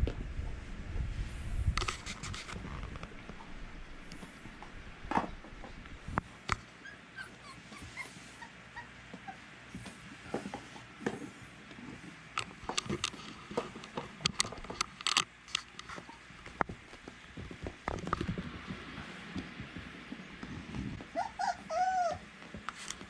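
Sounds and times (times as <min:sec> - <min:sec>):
puppies whimpering: 0:06.8 - 0:09.5, 0:21.1 - 0:22.3
paws scuffling on floor: 0:15.8 - 0:23.0.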